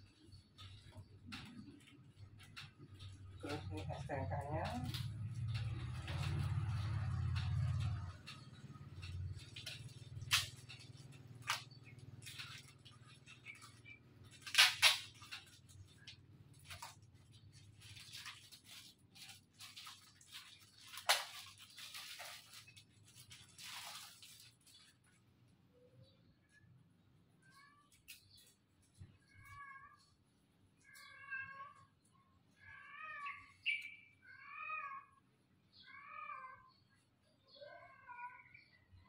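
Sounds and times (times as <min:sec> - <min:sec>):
paper and packaging rustling: 0:00.0 - 0:25.3.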